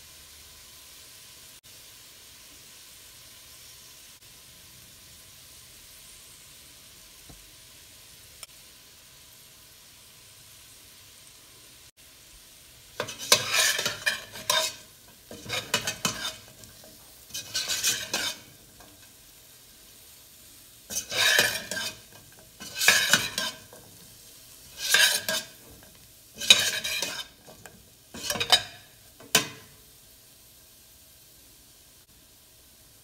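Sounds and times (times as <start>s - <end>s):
spoon scraping in sizzling oil: 12.7s - 31.0s.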